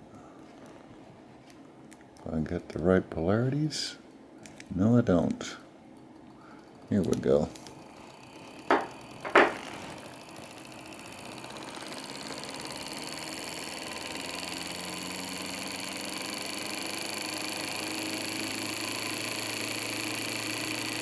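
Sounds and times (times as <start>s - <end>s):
motor whirring hum: 6.4s - 21.0s.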